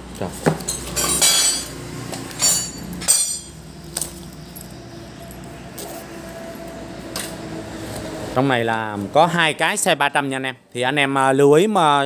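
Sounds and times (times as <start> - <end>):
metal wrenches clinking: 0.6 - 1.7, 2.4 - 5.5.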